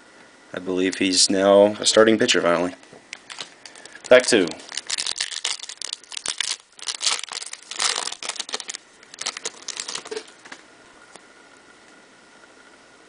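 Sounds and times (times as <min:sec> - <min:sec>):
foil wrapper crinkling and tearing: 0:03.1 - 0:10.6.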